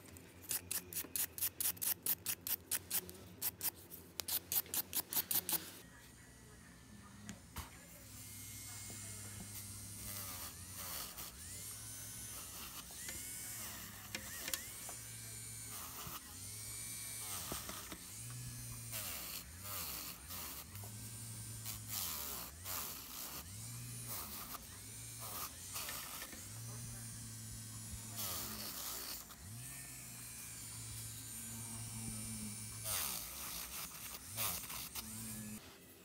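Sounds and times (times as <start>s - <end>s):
electric nail drill humming: 8.0s - 35.6s
drill bit scratching nail: 25.2s - 26.5s.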